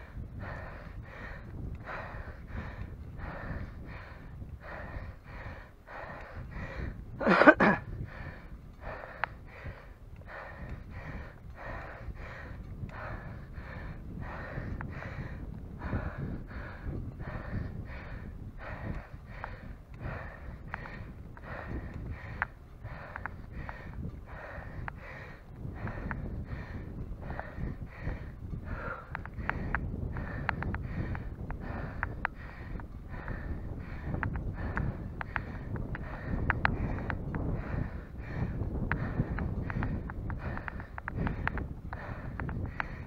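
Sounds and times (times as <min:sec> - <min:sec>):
person breathing hard: 0:00.0 - 0:43.0.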